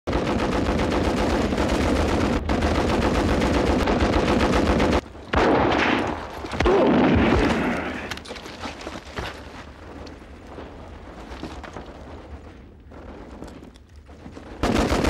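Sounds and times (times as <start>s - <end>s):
rapid machine-gun fire: 0.1s - 6.1s, 14.6s - 15.0s.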